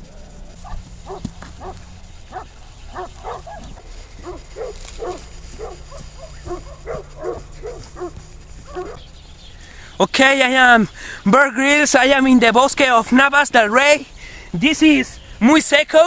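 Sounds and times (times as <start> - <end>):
steady low hum: 0.0 - 13.0
dog barking: 0.6 - 9.0.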